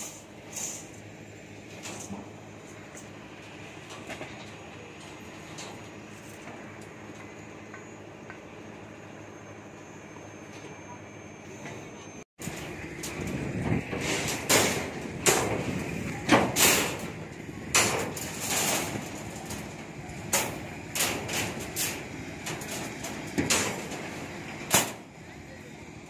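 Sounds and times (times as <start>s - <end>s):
steel bar clanking and scraping: 0.0s - 1.0s, 1.6s - 3.1s, 12.4s - 25.1s.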